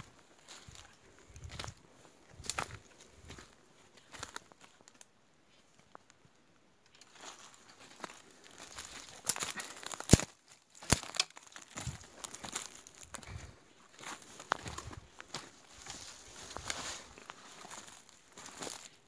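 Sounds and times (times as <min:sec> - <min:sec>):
footsteps crunching through dry leaves: 0:00.0 - 0:04.8, 0:07.1 - 0:19.0
brushing past undergrowth: 0:07.0 - 0:19.0.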